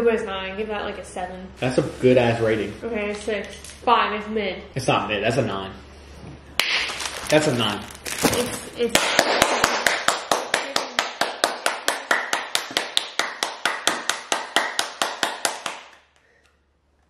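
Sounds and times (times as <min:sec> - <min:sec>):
rapid hand slaps: 0:06.6 - 0:06.9, 0:08.9 - 0:16.0.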